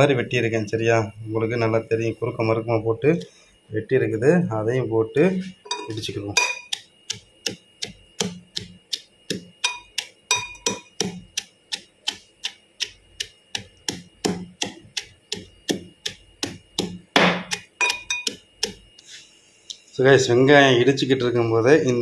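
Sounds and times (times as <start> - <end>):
pestle pounding in a mortar: 5.7 - 18.9.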